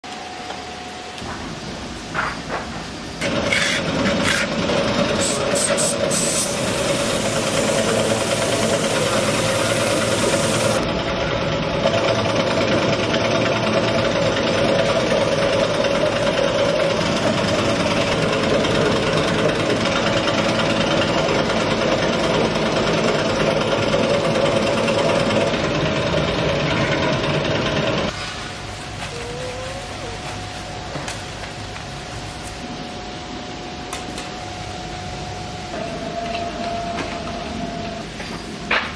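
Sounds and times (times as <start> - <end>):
workshop machine humming: 0.0 - 38.9
high hiss: 5.1 - 10.8.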